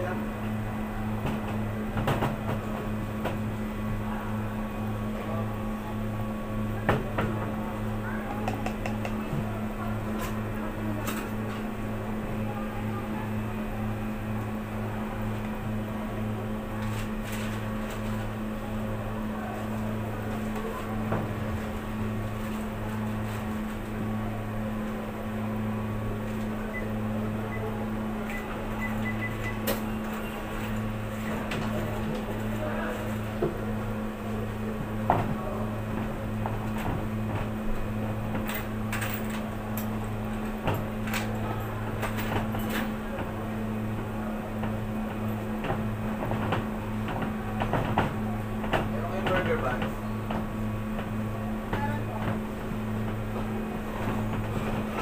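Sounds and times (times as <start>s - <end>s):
electrical hum of running machine: 0.0s - 55.0s
taps and clicks on metal tray: 8.4s - 9.2s.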